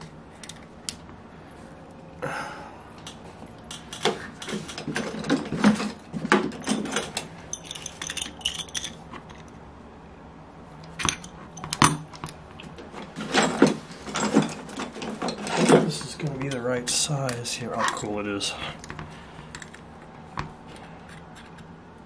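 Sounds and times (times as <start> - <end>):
small metal clicks and clinks: 6.6 - 9.5.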